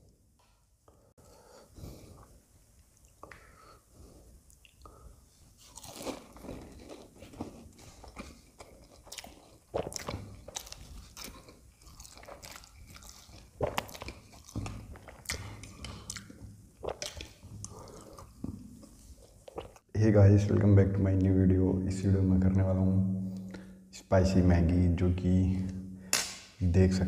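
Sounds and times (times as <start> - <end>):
crunchy bites and chewing: 5.6 - 17.2.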